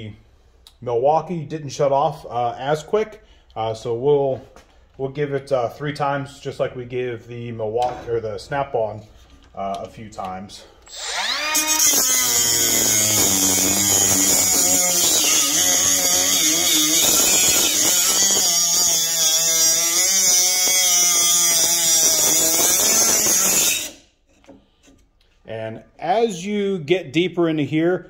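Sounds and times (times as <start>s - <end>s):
abrasive wheel cutting steel: 10.8s - 24.1s
cut-off tool motor spinning: 10.9s - 24.0s.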